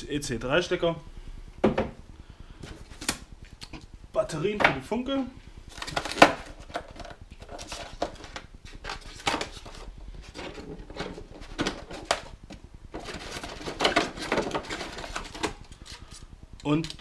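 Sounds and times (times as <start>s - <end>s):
plastic parts knocking: 1.6s - 2.0s, 5.7s - 16.0s.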